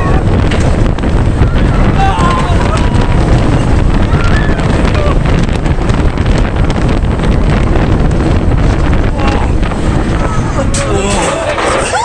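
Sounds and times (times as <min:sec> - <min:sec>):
faint voices: 0:00.0 - 0:05.4, 0:08.9 - 0:12.0
wind rushing over microphone: 0:00.0 - 0:12.0.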